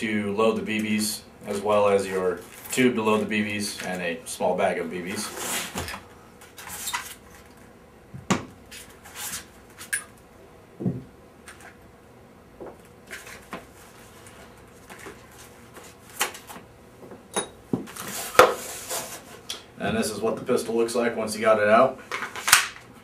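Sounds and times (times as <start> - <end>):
items knocking on table: 10.8 - 11.1.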